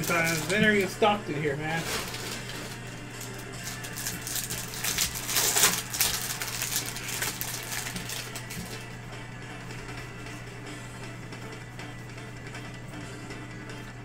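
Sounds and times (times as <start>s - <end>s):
plastic wrapper crinkling and tearing: 0.0s - 1.0s, 1.7s - 8.8s
low electrical hum: 0.0s - 14.0s.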